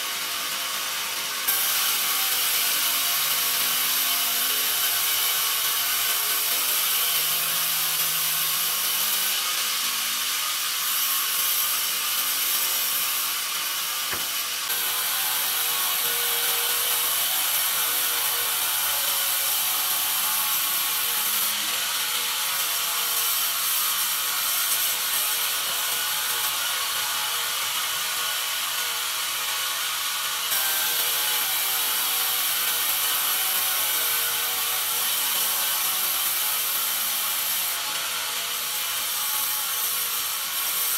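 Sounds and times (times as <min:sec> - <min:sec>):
band saw cutting wood: 0:00.0 - 0:40.9.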